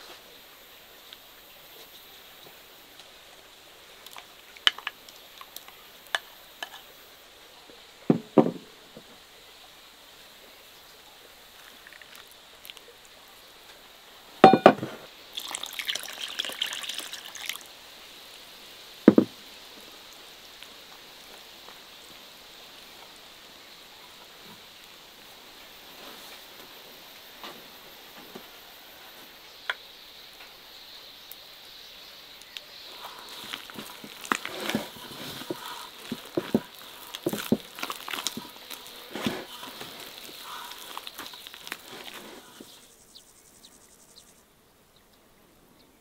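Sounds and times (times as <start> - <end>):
liquid pouring: 11.6 - 12.8, 14.5 - 17.7, 33.0 - 42.6
dishes and utensils clinking: 14.4 - 15.0.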